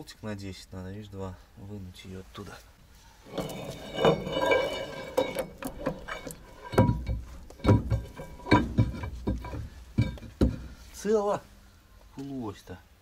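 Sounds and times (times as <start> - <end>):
metal clanks and knocks: 3.3 - 10.8.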